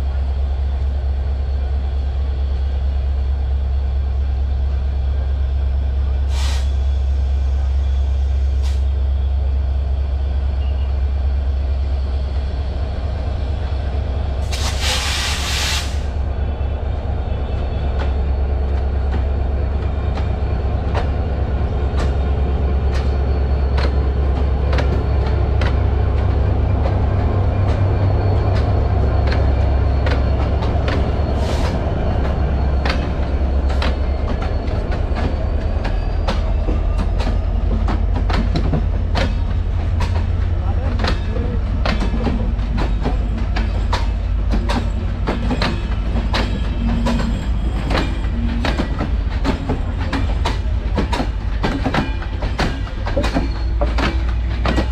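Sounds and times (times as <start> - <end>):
diesel locomotive rumble: 0.0 - 54.9
air hiss: 14.4 - 16.1.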